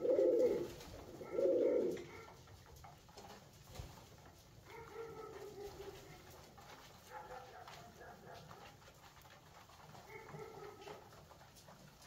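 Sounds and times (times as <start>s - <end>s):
pigeons cooing faintly: 0.0s - 3.0s, 3.6s - 8.8s.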